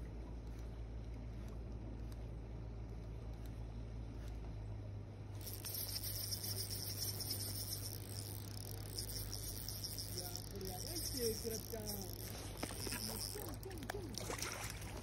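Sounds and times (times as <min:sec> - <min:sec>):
low steady hum: 0:00.0 - 0:15.0
fishing reel buzzing: 0:05.3 - 0:15.0.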